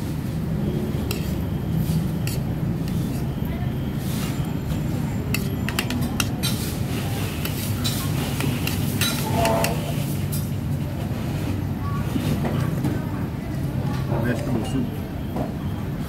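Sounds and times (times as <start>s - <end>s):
cutlery clinking on plates: 5.3s - 6.7s, 7.4s - 10.5s.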